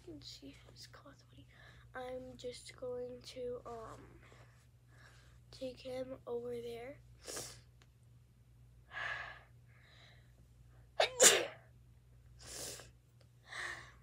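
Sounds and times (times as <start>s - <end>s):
soft breaths: 0.5s - 2.0s, 3.7s - 5.5s, 12.4s - 14.0s
person sneezing: 11.0s - 11.6s.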